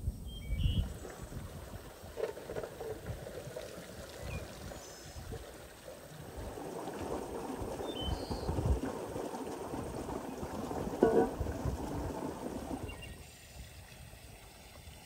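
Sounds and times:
water splashing into stone basin: 0:06.0 - 0:13.0
rind tumbling into colander: 0:10.8 - 0:11.8.

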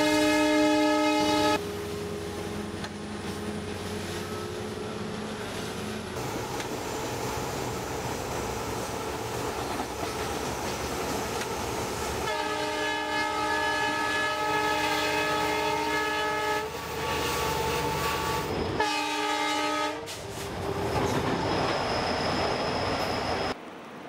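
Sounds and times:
multi-tone train horn: 0:00.0 - 0:01.9, 0:12.2 - 0:20.2
diesel locomotive running: 0:00.0 - 0:24.0.

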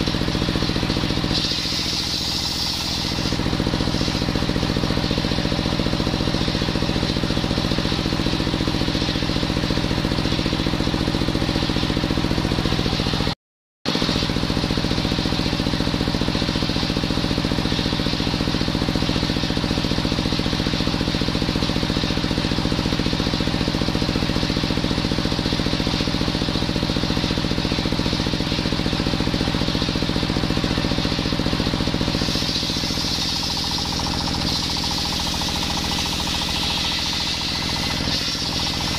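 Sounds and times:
circular saw cutting hiss: 0:01.4 - 0:04.5, 0:32.0 - 0:38.9
stationary engine pulsing: 0:27.4 - 0:38.9.

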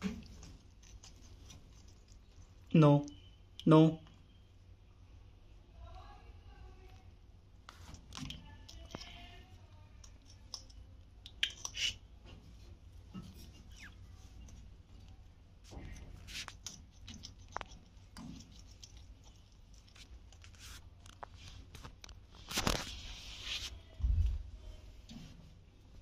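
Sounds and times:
low steady hum: 0:00.0 - 0:26.0
beaks and claws scratching wire mesh: 0:15.7 - 0:20.5.

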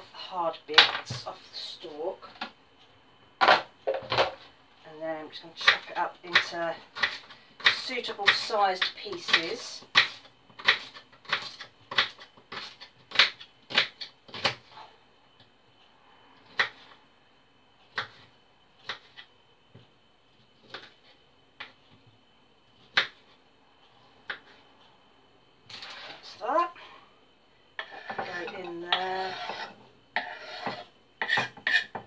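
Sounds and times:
knife chopping on wooden board: 0:27.8 - 0:32.0.

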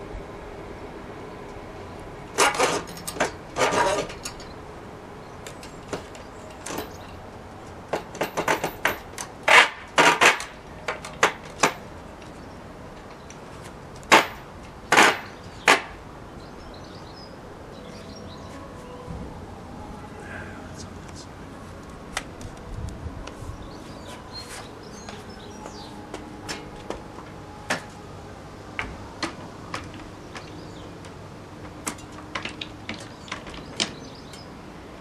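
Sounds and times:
metal rail knocking and clattering: 0:07.9 - 0:11.9.

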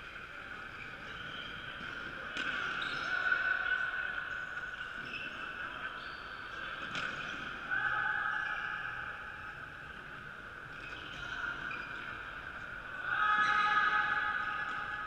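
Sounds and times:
sneakers squeaking on wooden floor: 0:00.6 - 0:03.4, 0:04.3 - 0:07.5.

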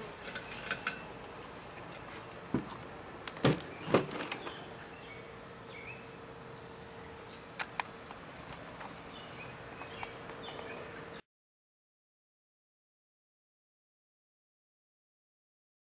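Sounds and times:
birds chirping: 0:00.0 - 0:11.2
robotic lawnmower humming: 0:00.0 - 0:11.2
sharp clicks: 0:07.6 - 0:08.6.

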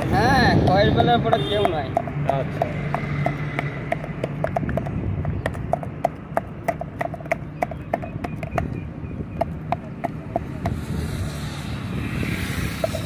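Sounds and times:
wooden stick pounding in steel tumbler: 0:00.9 - 0:08.8, 0:09.4 - 0:11.0, 0:12.7 - 0:13.0.

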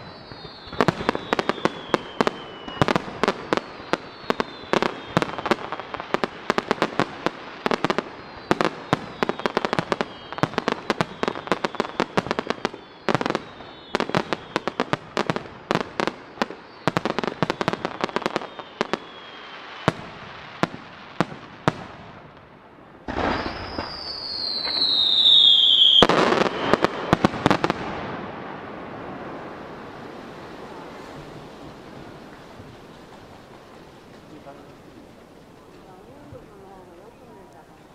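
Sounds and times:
fireworks whistles falling in pitch: 0:00.0 - 0:06.6, 0:07.6 - 0:20.3, 0:23.1 - 0:28.3
big fireworks bangs: 0:00.0 - 0:37.9.

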